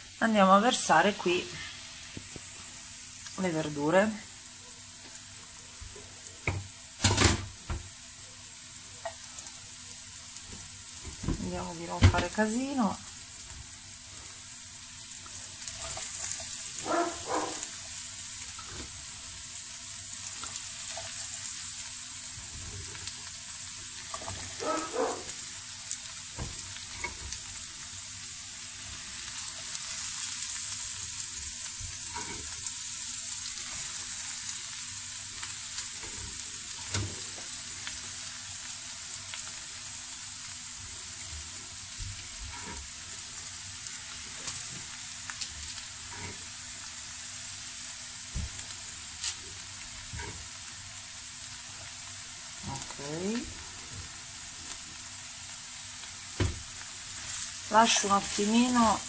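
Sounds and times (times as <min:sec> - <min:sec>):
vegetables sizzling in a pan: 0:00.0 - 0:59.0
knocks and clatters in pan: 0:05.9 - 0:07.9.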